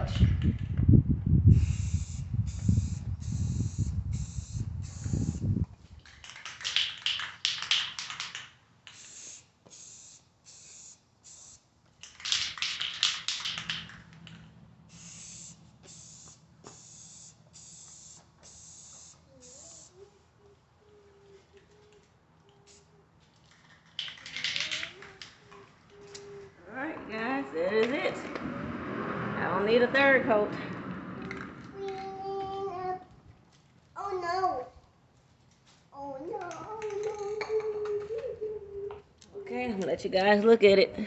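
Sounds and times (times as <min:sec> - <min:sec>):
aerosol spray hissing: 0:01.5 - 0:05.5, 0:08.9 - 0:11.6, 0:14.9 - 0:19.9
low rumble: 0:26.6 - 0:32.3.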